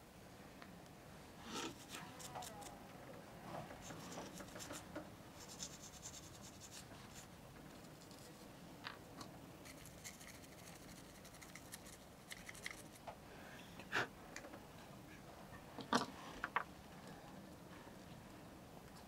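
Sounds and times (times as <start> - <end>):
small parts clicking and tapping: 8.0 - 13.0.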